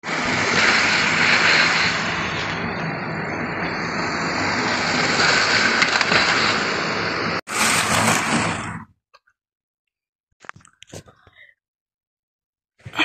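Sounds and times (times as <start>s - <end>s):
model train running on rails: 0.0s - 8.7s.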